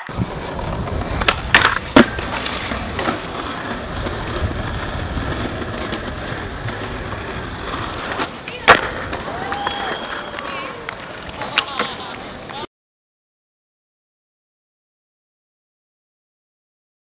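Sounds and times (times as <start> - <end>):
skateboard clacks: 0.0 - 12.7
skateboard wheels rolling on stone: 0.0 - 12.7.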